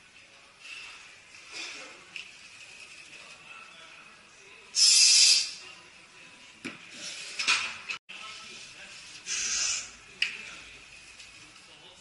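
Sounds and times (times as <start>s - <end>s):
sharp hissing exhale through teeth: 4.8s - 5.6s, 9.3s - 9.9s.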